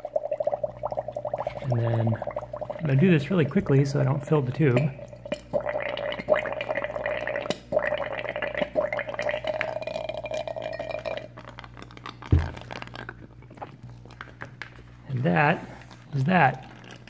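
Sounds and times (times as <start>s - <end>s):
air bubbling in liquid: 0.0s - 11.6s, 12.2s - 13.4s
aquarium pump hum: 0.0s - 17.0s
thump: 12.3s - 12.6s.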